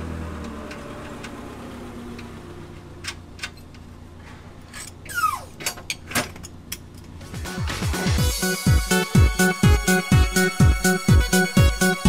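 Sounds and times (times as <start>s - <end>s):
metal bolts and tools clinking: 3.0s - 3.9s, 4.6s - 7.2s
short falling squeak: 4.8s - 5.8s.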